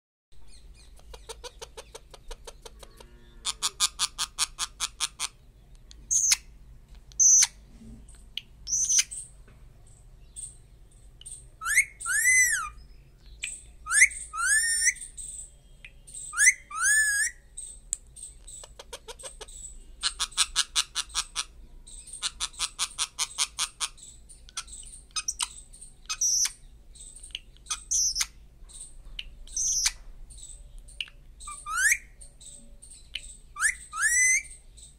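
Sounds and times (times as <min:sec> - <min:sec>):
parakeet calling: 0:00.4 - 0:05.5, 0:07.2 - 0:07.6, 0:08.7 - 0:09.3, 0:11.2 - 0:15.5, 0:16.1 - 0:34.9.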